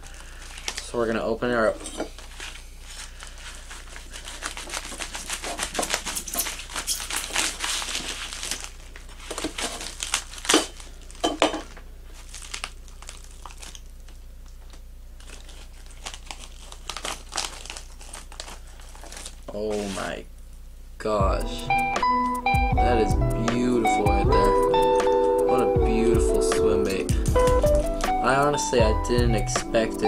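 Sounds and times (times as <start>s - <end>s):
packaging crinkling: 0.0s - 20.2s.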